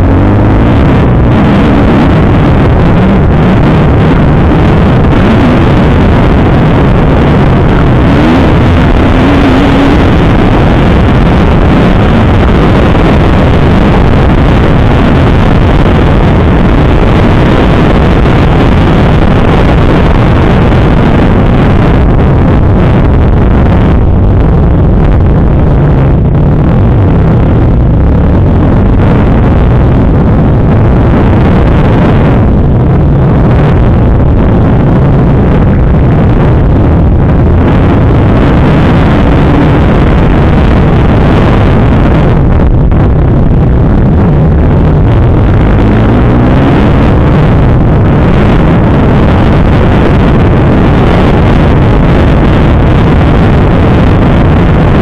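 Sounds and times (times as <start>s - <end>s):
dirt bike engine revving: 0.0s - 13.6s.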